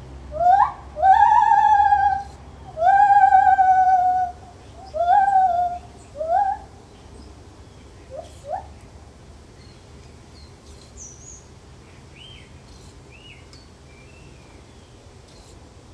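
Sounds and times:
gibbon hooting calls: 0:00.3 - 0:06.7.

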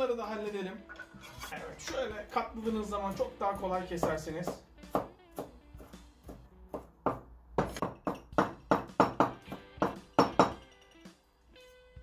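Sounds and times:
knife chopping on plastic board: 0:03.6 - 0:10.5.

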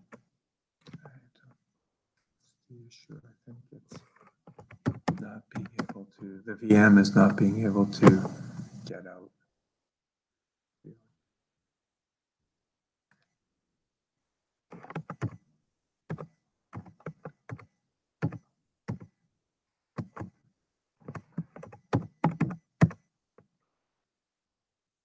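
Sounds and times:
computer keyboard typing: 0:04.5 - 0:06.0, 0:14.7 - 0:15.4, 0:16.1 - 0:19.1, 0:20.0 - 0:20.4, 0:21.0 - 0:23.0.

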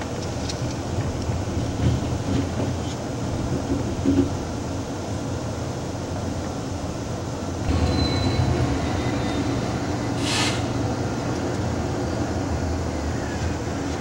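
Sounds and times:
train rumbling on rails: 0:00.0 - 0:14.0
faint thin wheel squeal: 0:07.7 - 0:10.7
short hiss: 0:10.2 - 0:10.7.

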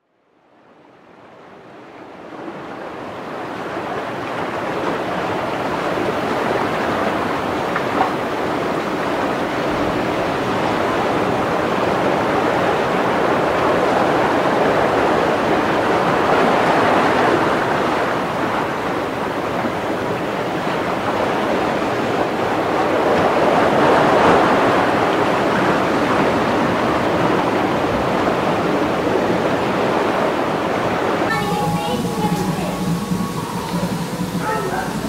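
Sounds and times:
steady rushing water-like noise: 0:31.3 - 0:35.0.

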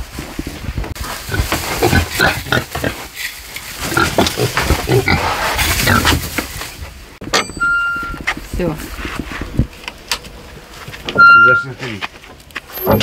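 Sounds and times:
pigs grunting: 0:01.2 - 0:03.2, 0:03.8 - 0:06.2.

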